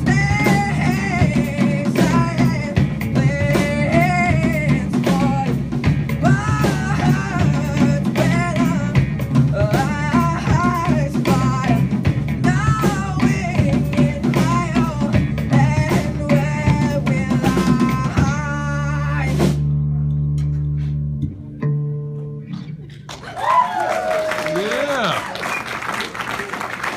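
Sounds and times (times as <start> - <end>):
drum hits: 0.0 - 18.6
rock band playing: 0.0 - 23.6.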